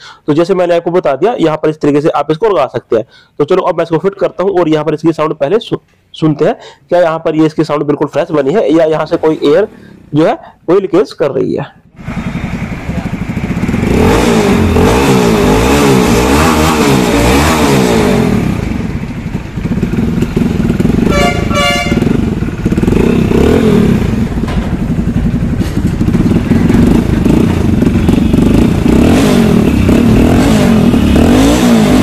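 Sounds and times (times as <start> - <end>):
motorcycle engine revving: 8.9 - 10.2, 12.0 - 32.0
short choppy horn: 21.0 - 22.2.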